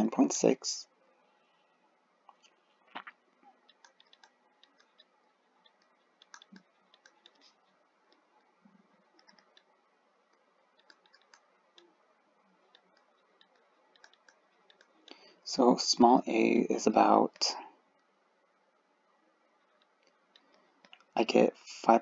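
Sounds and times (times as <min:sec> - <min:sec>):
computer mouse clicks: 0:02.3 - 0:12.0, 0:12.6 - 0:15.2, 0:19.6 - 0:21.2.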